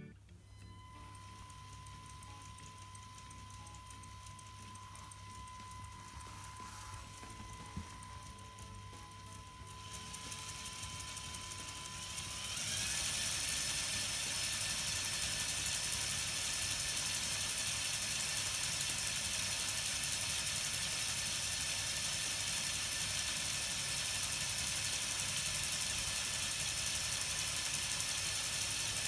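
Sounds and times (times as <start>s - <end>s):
electric motor rattling whir: 0.4s - 29.0s.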